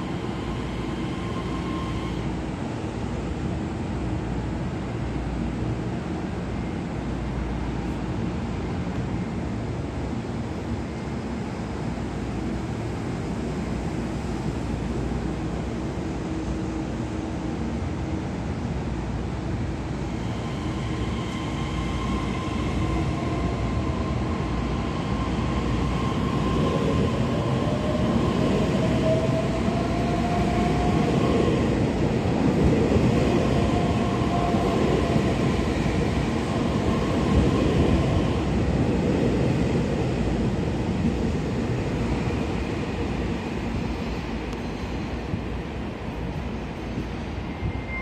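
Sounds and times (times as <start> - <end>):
train wheels on rails: 10.4 - 48.0.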